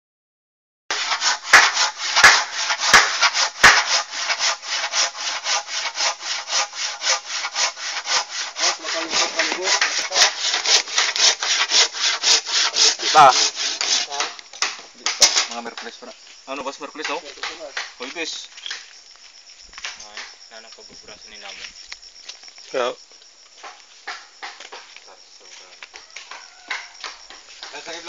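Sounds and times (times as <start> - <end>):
sharp knocks: 0.9 - 4.5, 13.5 - 16.0, 17.0 - 18.9, 19.8 - 20.4, 23.6 - 24.9, 25.9 - 27.9
handsaw cutting wood: 0.9 - 14.3.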